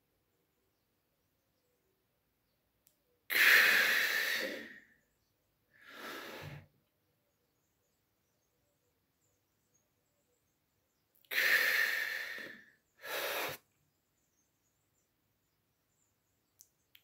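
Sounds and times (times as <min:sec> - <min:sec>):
man breathing deeply: 0:03.3 - 0:05.0, 0:05.8 - 0:06.7, 0:11.3 - 0:13.6.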